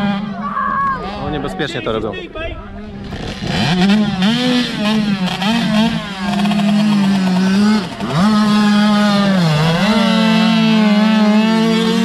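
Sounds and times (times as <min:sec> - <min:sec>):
motorbike engine revving: 0:02.8 - 0:12.0.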